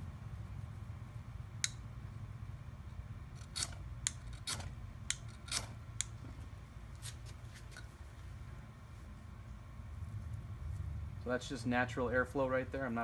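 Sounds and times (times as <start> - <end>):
metal striker rasping on fire rod: 3.4 - 6.1.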